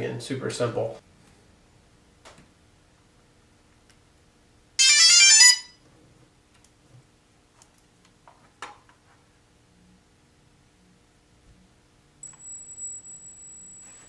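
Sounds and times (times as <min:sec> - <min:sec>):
electronic beeps: 0:12.2 - 0:14.0.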